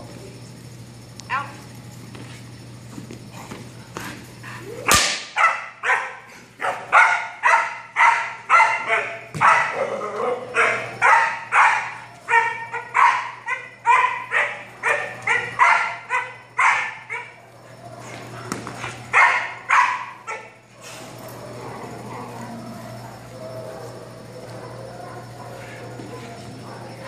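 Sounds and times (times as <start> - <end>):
puppy barking: 5.4 - 17.4, 19.1 - 20.6.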